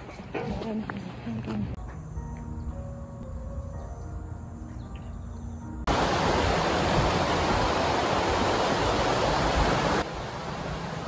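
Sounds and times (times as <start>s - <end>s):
steady rushing noise: 5.9s - 11.0s.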